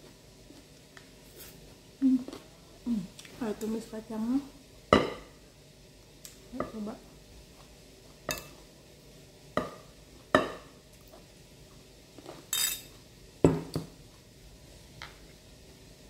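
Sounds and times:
metal spoon clinking on dishes: 8.3 - 8.6, 12.5 - 13.0.

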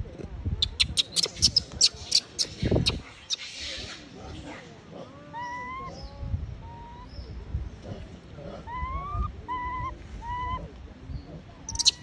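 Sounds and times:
infant monkey whimpering cries: 5.1 - 7.1, 8.6 - 10.7.

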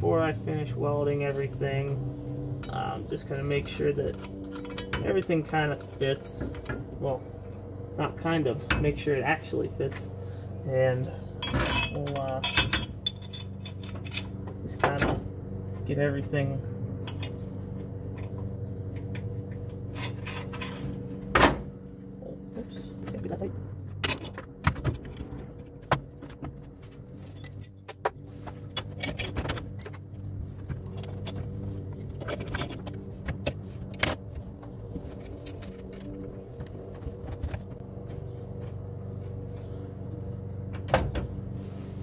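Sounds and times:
steady low hum: 0.0 - 42.0
steel parts clinking and knocking: 2.6 - 5.6, 11.4 - 15.1, 17.0 - 17.5, 23.9 - 25.8, 26.9 - 34.2.

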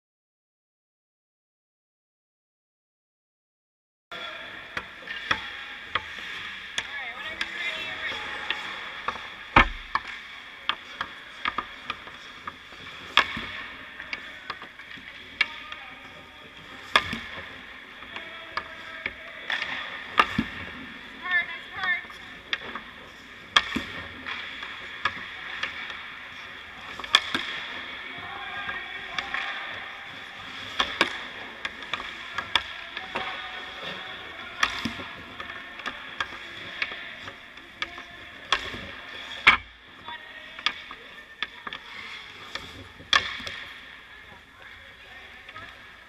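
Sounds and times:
pucks clacking off sticks: 4.5 - 46.0
skate blades scraping ice: 4.9 - 46.0.

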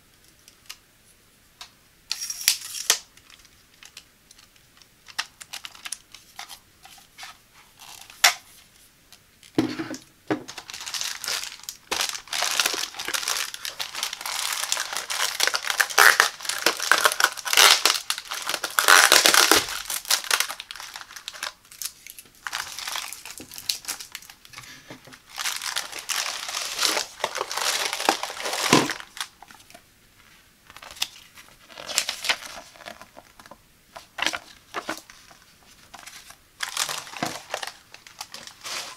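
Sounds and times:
plastic packaging crinkling: 2.1 - 8.4, 10.5 - 29.8, 30.7 - 38.9.

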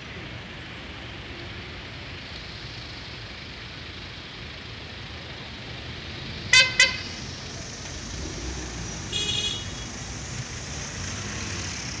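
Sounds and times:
street traffic: 0.0 - 12.0
vehicle horn toot: 6.5 - 7.1, 9.1 - 9.9.

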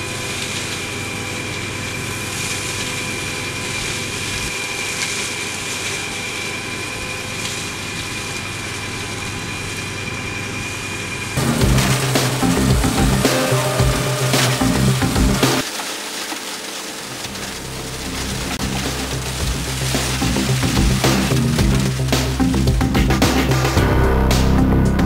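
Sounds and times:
hedge cutter high whine: 0.0 - 25.0
tractor engine running: 11.4 - 25.0.

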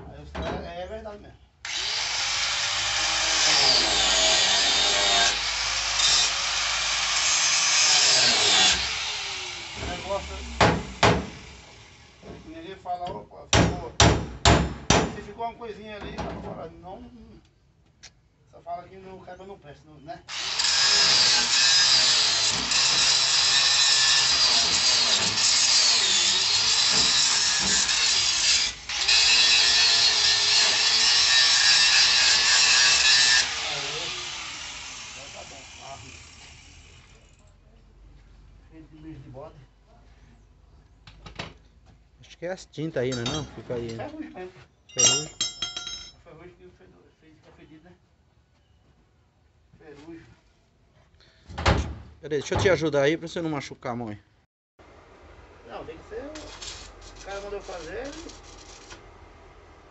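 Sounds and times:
angle grinder grinding metal: 1.7 - 12.2, 20.3 - 37.3.

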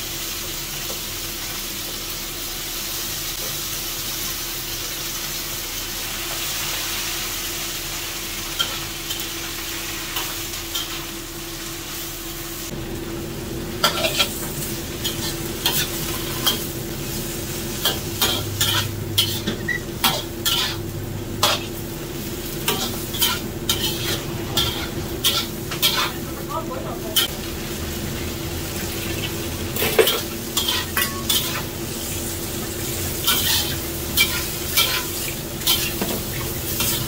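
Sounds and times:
greens sizzling in a wok: 0.0 - 37.0
metal spatula scraping a wok: 13.8 - 16.7, 17.7 - 21.8, 22.6 - 26.2, 29.8 - 31.7, 33.2 - 37.0.

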